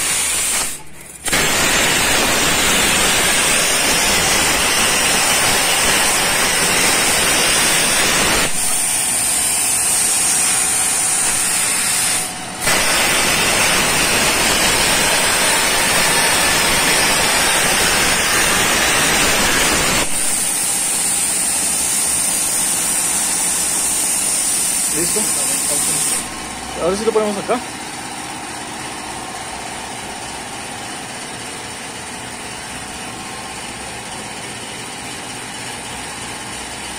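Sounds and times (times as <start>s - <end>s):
plasma torch hissing: 0.0s - 27.6s.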